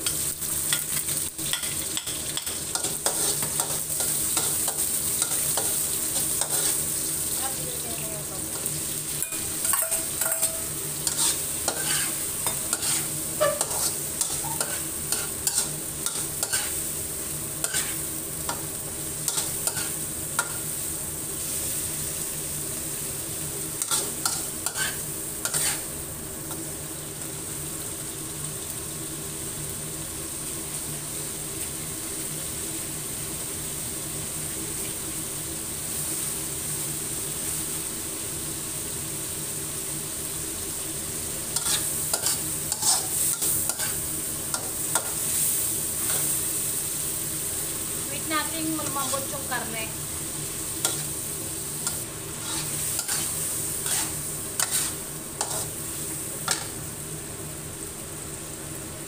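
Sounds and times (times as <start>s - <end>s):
spatula scraping a pan: 0.0s - 7.5s, 9.1s - 16.9s, 17.6s - 18.6s, 19.2s - 20.6s, 23.8s - 25.9s, 41.5s - 46.4s, 50.8s - 51.2s, 51.8s - 55.8s, 56.4s - 56.8s
pork sizzling in a wok: 0.0s - 59.0s.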